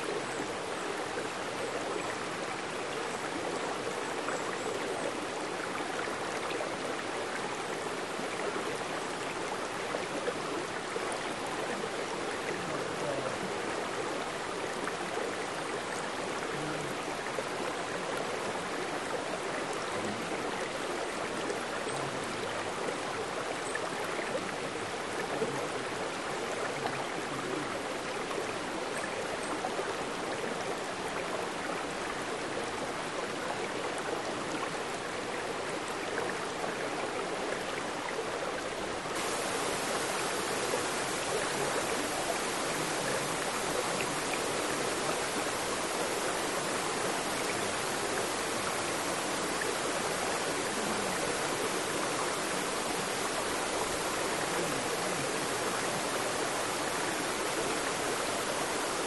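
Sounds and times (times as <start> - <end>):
stream flowing over boulders: 0.0 - 59.0
small cascade pouring into pool: 39.2 - 59.0.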